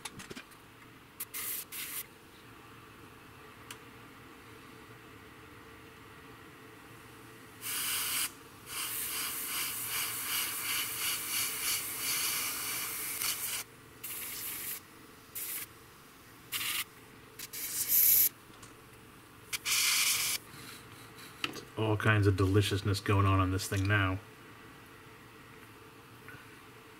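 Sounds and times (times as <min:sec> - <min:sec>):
airbrush air hiss: 0:01.2 - 0:02.1, 0:07.6 - 0:15.7, 0:16.5 - 0:18.3, 0:19.5 - 0:21.4.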